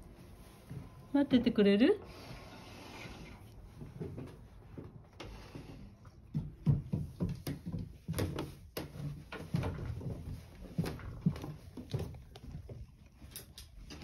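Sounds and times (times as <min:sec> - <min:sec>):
footsteps on wooden stairs: 0:06.2 - 0:12.4.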